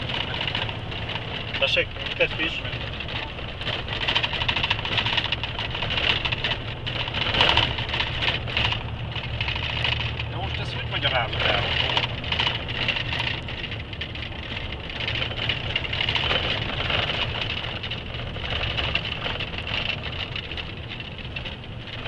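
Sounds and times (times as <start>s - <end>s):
road and cab noise hiss: 0.0s - 14.1s
truck engine hum: 0.0s - 22.0s.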